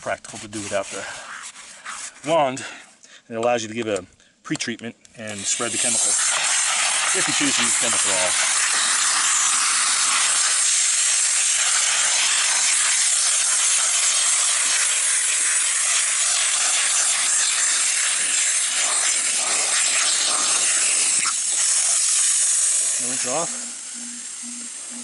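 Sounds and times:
bristle brush scrubbing: 0.0s - 2.3s
steam jet hissing: 5.3s - 25.0s.

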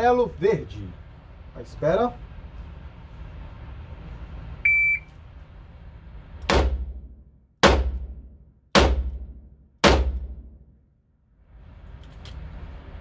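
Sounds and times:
shot timer beep: 4.7s - 5.1s.

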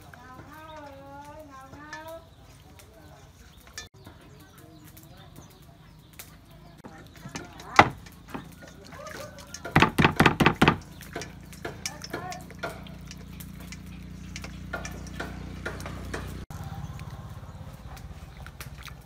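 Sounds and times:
water sloshing and splashing: 6.2s - 19.0s.

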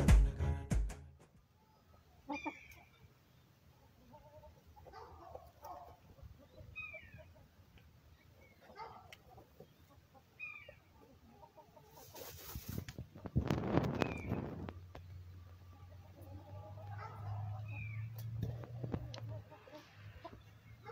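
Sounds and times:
hen clucking: 1.6s - 20.9s
rustling and scratching dry dirt: 11.5s - 20.9s.

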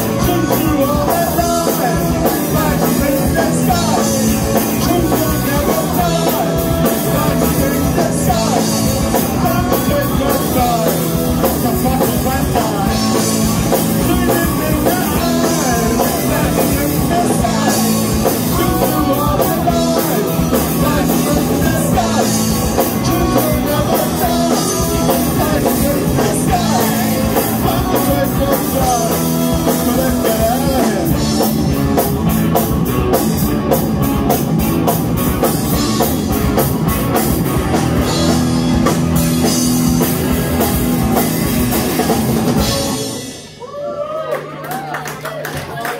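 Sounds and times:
man singing into a microphone: 0.0s - 31.7s
electric guitars: 0.0s - 43.6s
drum kit: 0.0s - 43.7s
electric bass: 0.0s - 43.7s.

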